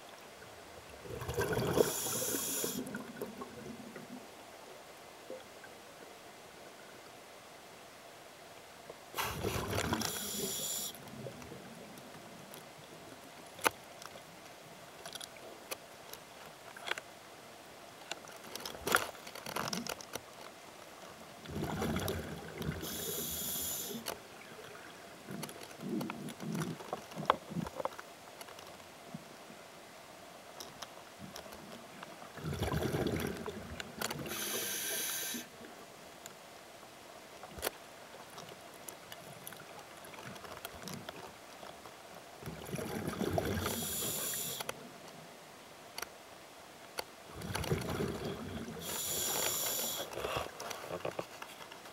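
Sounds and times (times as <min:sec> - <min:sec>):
exhaled bubbles rushing: 0:01.0 - 0:02.2
diver breathing through regulator: 0:01.6 - 0:02.9, 0:09.2 - 0:11.0, 0:22.8 - 0:24.1, 0:34.2 - 0:35.5, 0:43.5 - 0:44.7, 0:48.8 - 0:50.6
faint clicks and crackles: 0:08.9 - 0:17.1, 0:18.0 - 0:29.4, 0:30.5 - 0:36.4, 0:37.3 - 0:45.2, 0:45.9 - 0:46.2, 0:46.8 - 0:51.9.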